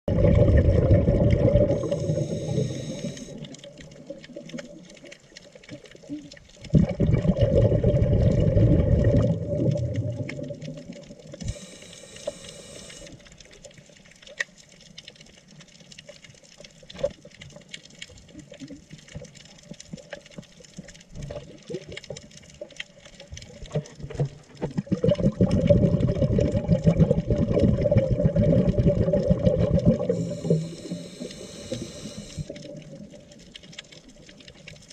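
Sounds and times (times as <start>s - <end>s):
exhaled bubbles rumbling: 0.0s - 13.0s, 23.3s - 34.9s
reef clicks and crackles: 0.1s - 34.9s
diver breathing through regulator: 1.6s - 3.7s, 11.4s - 13.3s, 30.0s - 32.7s.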